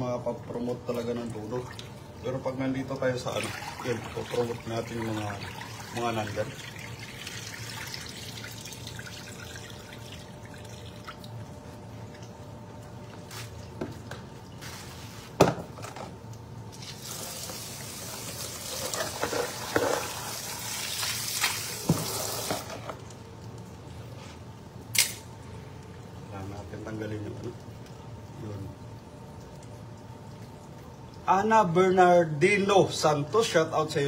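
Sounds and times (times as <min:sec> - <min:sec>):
tap water running into sink: 0:16.8 - 0:23.2.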